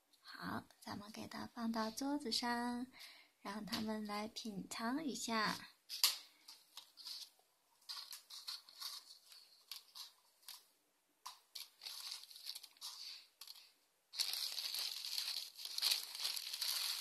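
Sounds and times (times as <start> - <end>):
plastic wrapping crinkling and tearing: 5.9 - 10.7, 11.3 - 17.0.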